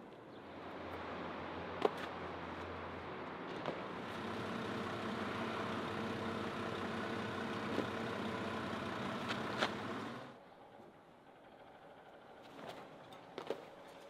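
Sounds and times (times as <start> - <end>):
heavy machinery engine idling: 4.1 - 10.4.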